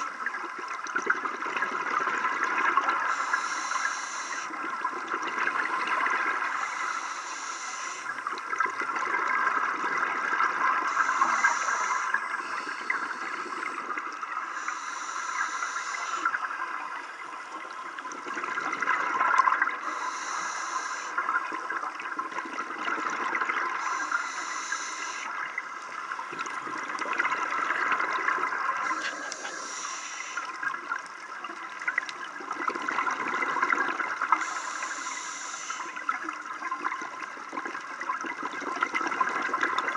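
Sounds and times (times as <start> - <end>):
regulator breathing hiss: 3.1 - 4.6, 6.4 - 8.2, 10.9 - 13.8, 14.5 - 16.4, 19.8 - 21.2, 23.8 - 25.9, 28.9 - 30.6, 34.4 - 36.1
exhaled bubbles rushing: 4.6 - 6.7, 8.1 - 11.2, 17.6 - 19.8, 21.2 - 23.9, 25.3 - 29.8, 30.5 - 34.4, 36.0 - 39.9.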